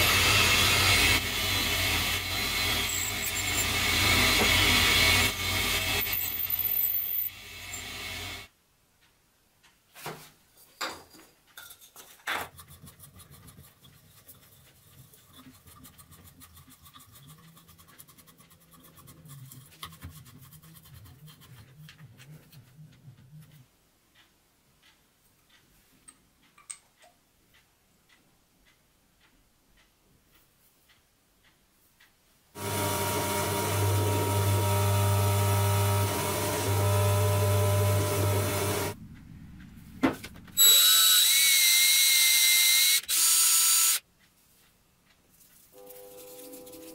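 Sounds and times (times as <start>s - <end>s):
drill boring into metal: 0.0s - 8.4s, 32.6s - 39.0s, 40.6s - 44.0s
metal lathe running: 0.0s - 8.4s, 32.6s - 39.0s.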